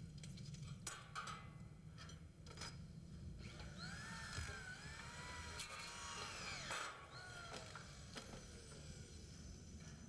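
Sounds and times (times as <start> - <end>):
power drill running: 3.5 - 9.4.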